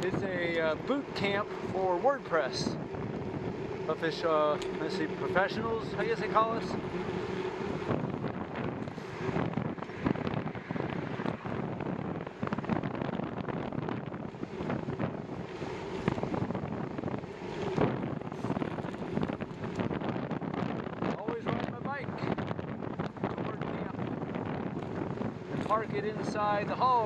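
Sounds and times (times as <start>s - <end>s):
wind rushing over microphone: 0.0s - 27.0s.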